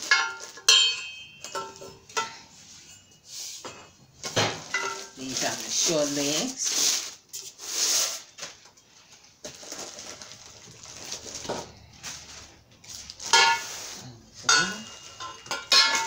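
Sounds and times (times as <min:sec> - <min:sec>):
hollow metal tubes knocking: 0:00.0 - 0:05.2, 0:13.2 - 0:13.7, 0:14.3 - 0:16.0
plastic film crinkling: 0:04.3 - 0:14.2.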